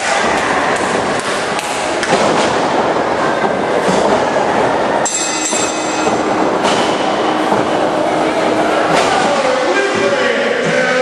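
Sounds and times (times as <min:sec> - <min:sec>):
echoing crowd din: 0:00.0 - 0:11.0.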